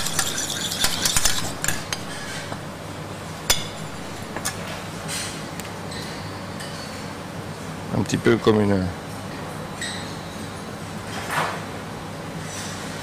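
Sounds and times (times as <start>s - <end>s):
metal spoon clinking against pan: 0.0s - 2.6s, 3.5s - 4.6s.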